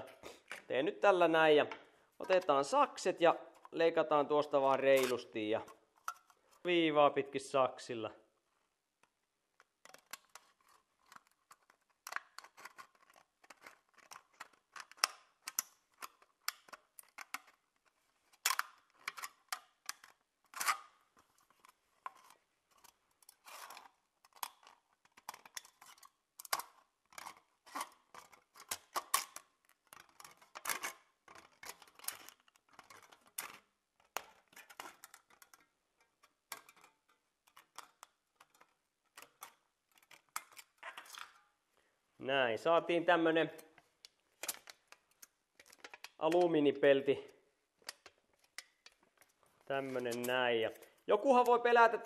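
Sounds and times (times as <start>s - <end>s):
scissors snipping metal can: 4.9s - 5.2s.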